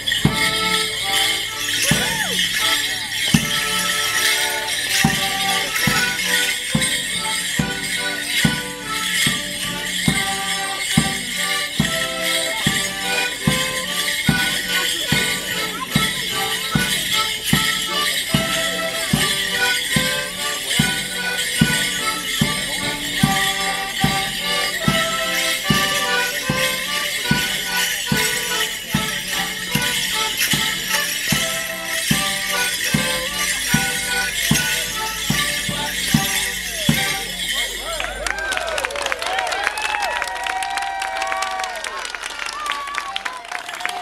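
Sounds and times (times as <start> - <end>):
fiddle and accordion tune: 0.0 - 38.0
leg bells jingling: 0.0 - 44.0
steady drum beat: 4.8 - 37.4.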